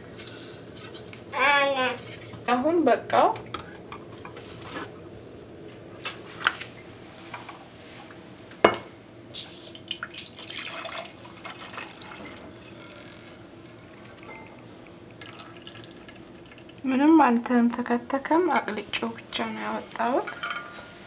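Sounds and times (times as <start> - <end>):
syrup pouring into glass jug: 10.0 - 13.1, 15.2 - 16.8
saucepan clinking: 14.2 - 14.6.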